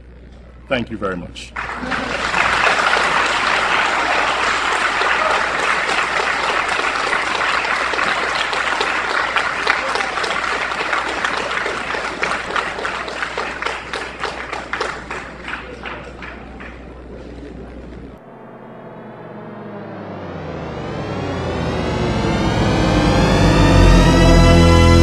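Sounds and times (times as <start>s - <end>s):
crowd applauding: 1.6s - 17.7s.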